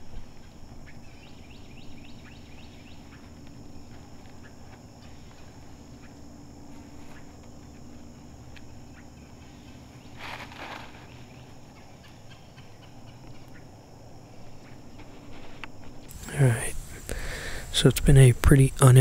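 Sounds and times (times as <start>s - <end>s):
dry leaves and twigs crackling: 0.0s - 17.8s
steady high buzz: 0.0s - 19.0s
loud rustle: 10.0s - 11.4s.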